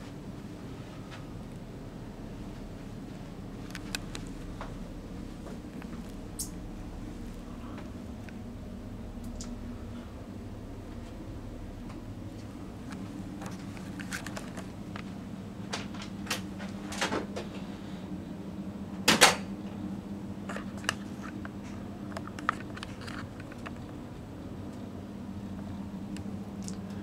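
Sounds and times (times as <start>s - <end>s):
low cabin hum: 0.0s - 27.0s
small clicks and knocks: 20.5s - 24.0s.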